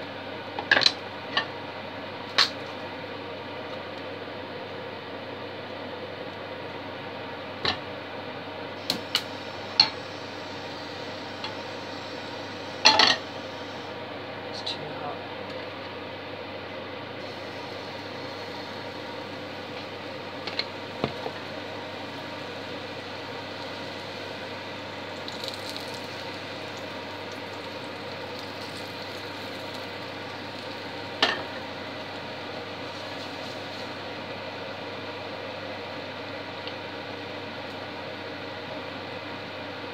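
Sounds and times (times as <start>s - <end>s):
pancake frying hiss: 8.8s - 13.9s, 17.2s - 35.2s
sizzling crackles: 8.8s - 13.9s, 17.2s - 35.2s.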